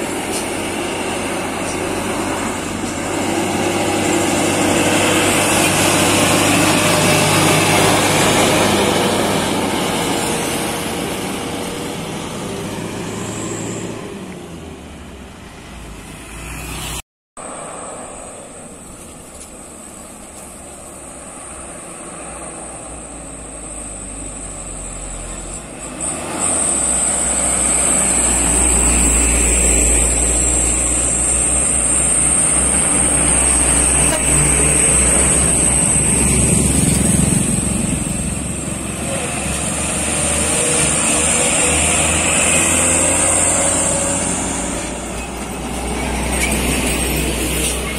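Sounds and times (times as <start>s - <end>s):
heavy diesel trucks labouring uphill: 0.0s - 47.9s.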